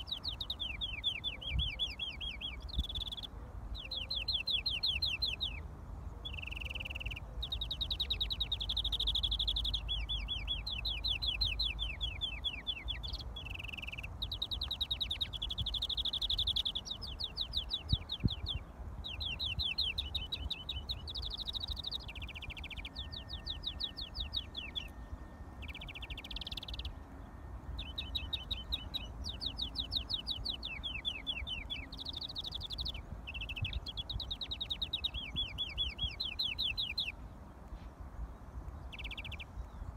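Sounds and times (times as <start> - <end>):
finch singing fast trills: 0.0 - 37.2, 38.6 - 39.9
low wind rumble: 0.0 - 39.9.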